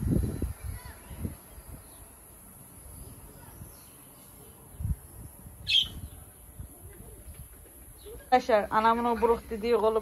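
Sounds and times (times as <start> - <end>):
faint insects: 0.0 - 10.0
birds: 0.2 - 10.0
short high bird chirp: 5.6 - 6.2.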